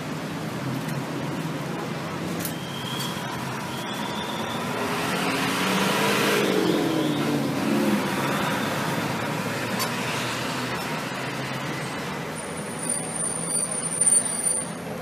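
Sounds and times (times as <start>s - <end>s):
vehicle passing by: 4.6s - 12.0s.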